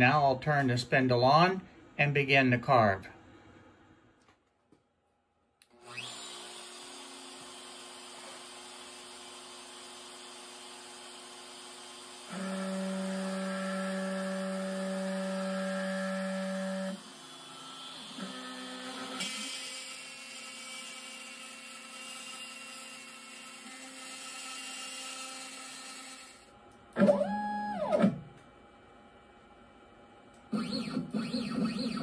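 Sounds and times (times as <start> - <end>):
router cutting wood: 5.8 - 26.4
router whine: 5.8 - 28.3, 30.5 - 32.0.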